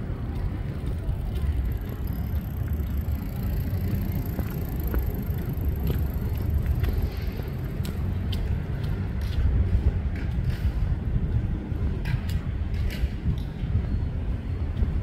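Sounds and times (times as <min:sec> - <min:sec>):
low street rumble: 0:00.0 - 0:15.0
light clicks and ticks: 0:01.2 - 0:09.5.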